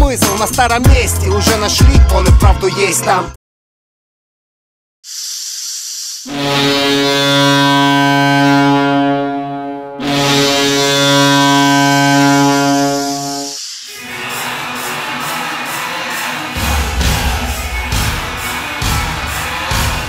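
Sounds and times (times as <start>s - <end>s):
hissing rush of noise: 5.1s - 6.3s, 13.4s - 18.6s
deep goal horn blasts: 6.3s - 13.6s.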